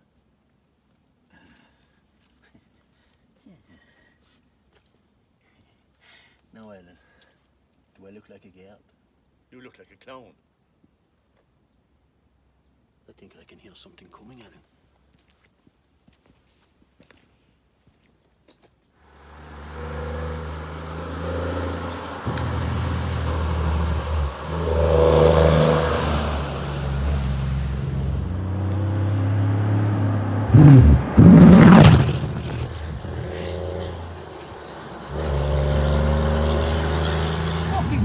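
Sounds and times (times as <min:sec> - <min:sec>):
engine revving: 0:19.1 - 0:38.0.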